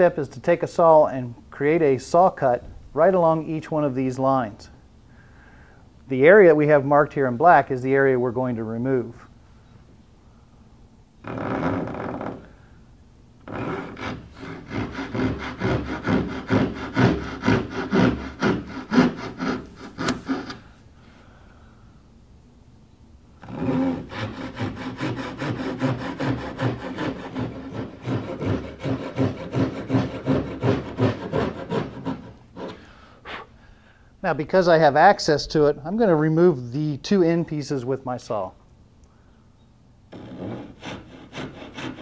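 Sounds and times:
backsaw cutting wood: 13.4s - 20.6s, 23.4s - 32.8s, 40.1s - 42.0s.

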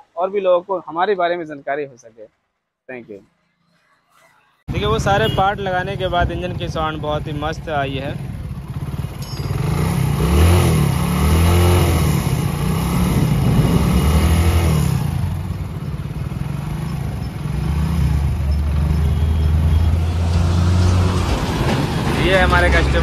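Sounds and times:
motorcycle engine revving and running: 5.0s - 22.4s.

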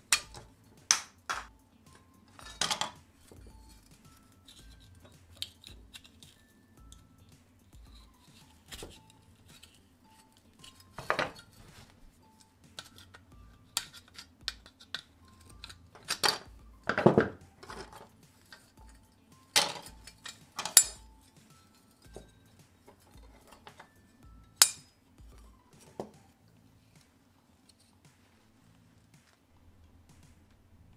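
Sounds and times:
clicks and clinks of small parts: 0.0s - 7.1s, 7.7s - 11.6s, 12.3s - 24.9s
plastic parts snapping and knocking: 0.1s - 1.5s, 2.4s - 3.4s, 4.5s - 6.4s, 10.6s - 11.5s, 12.7s - 18.7s, 19.5s - 21.0s.

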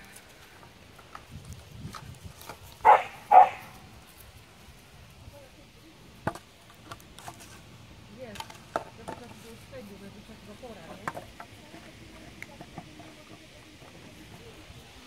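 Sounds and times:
puppy barking: 2.8s - 3.8s.

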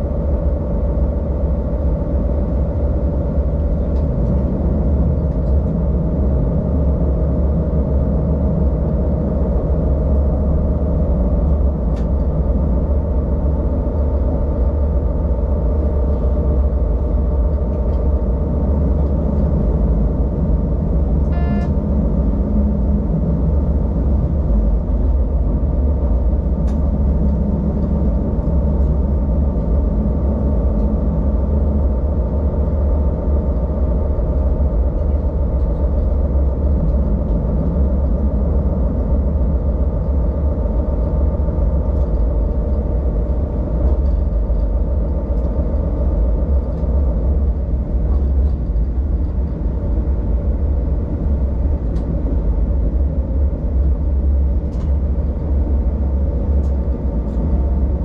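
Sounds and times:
diesel railcar engine drone: 0.0s - 58.0s
track rumble: 0.0s - 58.0s
short high beep: 21.3s - 21.8s.

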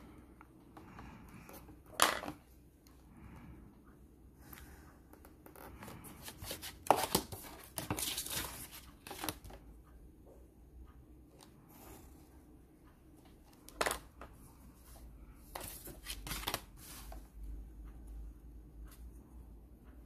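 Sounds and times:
pencil handling: 5.2s - 9.6s, 14.9s - 17.3s
paper rustling: 6.0s - 9.6s, 15.5s - 17.2s.

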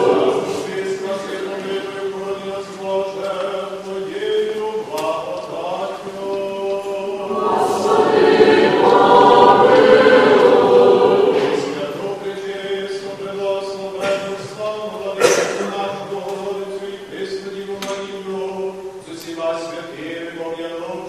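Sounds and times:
choir singing: 0.0s - 14.1s.

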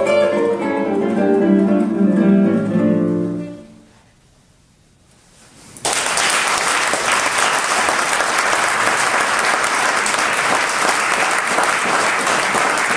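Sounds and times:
audience applauding: 5.8s - 12.9s.

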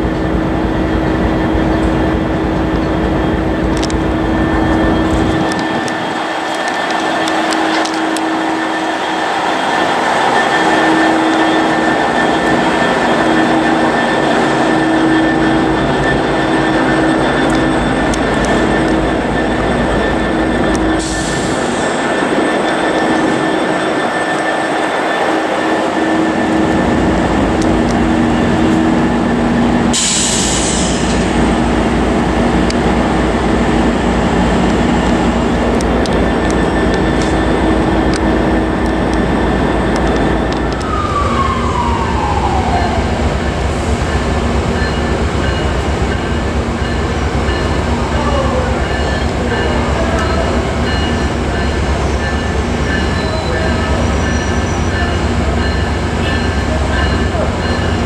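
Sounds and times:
approaching train rumble: 0.0s - 58.0s
diesel locomotive idling: 0.0s - 58.0s
falling tone: 40.3s - 44.0s.

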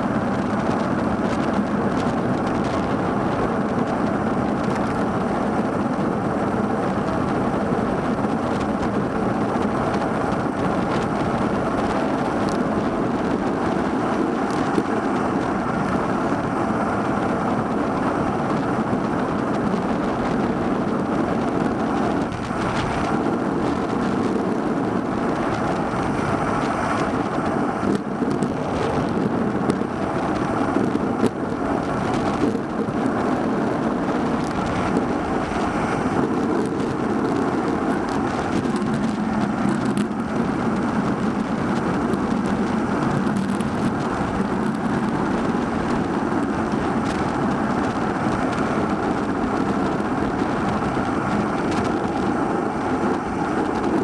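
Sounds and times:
wind and road noise: 0.0s - 54.0s.

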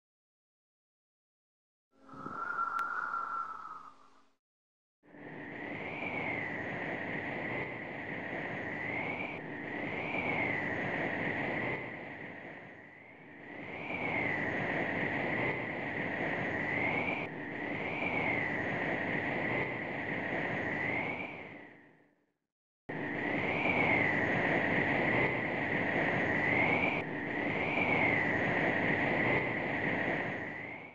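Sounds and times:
rushing air noise: 2.0s - 4.2s
thin wavering whistle: 2.0s - 4.4s.

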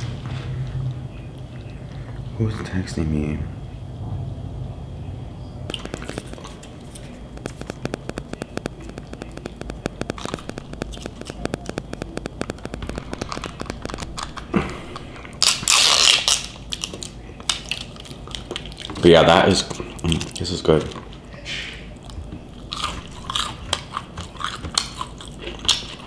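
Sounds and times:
rustling or crunching burst: 5.7s - 16.6s
chewing food: 16.7s - 21.3s, 21.9s - 26.0s.

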